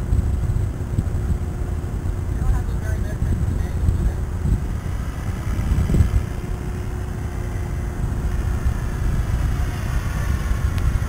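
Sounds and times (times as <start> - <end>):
distant helicopter hum: 0.0 - 11.0
low rumbling noise: 0.0 - 11.0.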